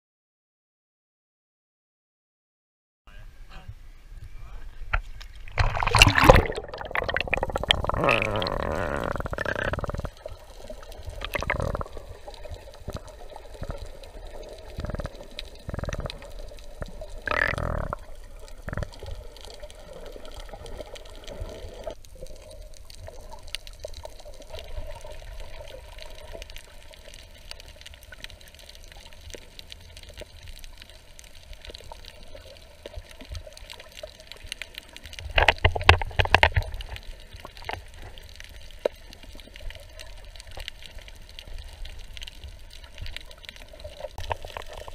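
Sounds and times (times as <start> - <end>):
faint crackle: 3.1 - 44.9
water gurgling underwater: 5.4 - 38.4
bubbling bursts: 5.5 - 22.0.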